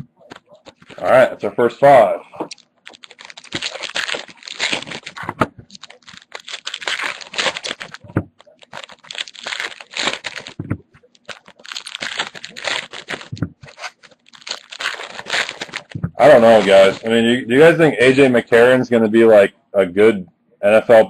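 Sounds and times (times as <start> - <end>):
foil wrappers crinkling and tearing: 0.3 - 1.2, 2.5 - 17.2.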